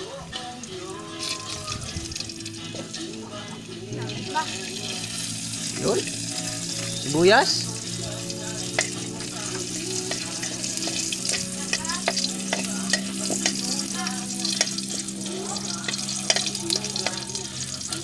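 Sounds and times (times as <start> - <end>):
garlic and onion sizzling in oil: 0.0 - 18.0.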